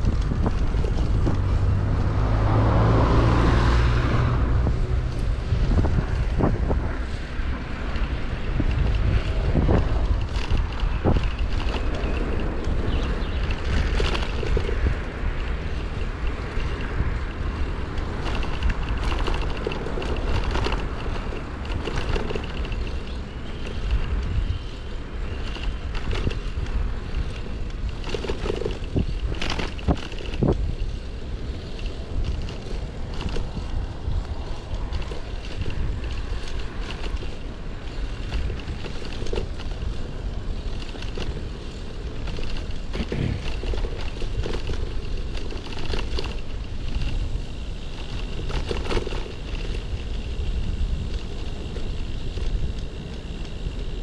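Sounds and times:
traffic noise: 0:00.0 - 0:54.0
wind rumbling on microphone: 0:00.0 - 0:54.0.

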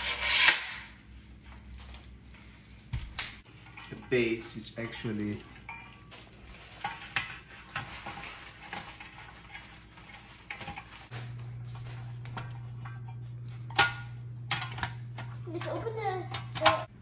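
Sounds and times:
steady low hum: 0:00.0 - 0:17.0
metal tray clinking and rattling: 0:03.4 - 0:11.1.

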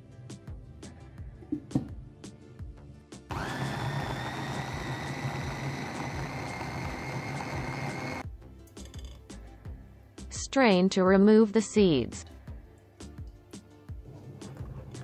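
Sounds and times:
electric food chopper whining: 0:03.3 - 0:08.2.

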